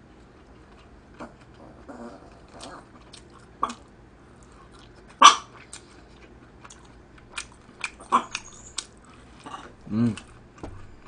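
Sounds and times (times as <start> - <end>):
mouth sounds of eating: 0.3 - 11.0
small dog barking: 5.2 - 5.6.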